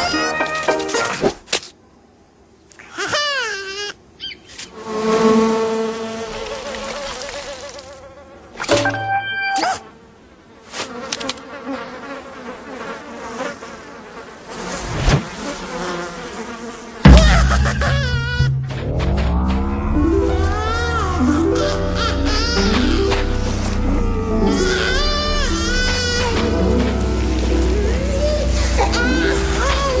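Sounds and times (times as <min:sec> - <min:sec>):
cartoon flies buzzing: 0:02.9 - 0:10.0, 0:10.7 - 0:30.0
sudden loud low sound: 0:17.1 - 0:22.0
short cartoon noises: 0:17.1 - 0:26.4.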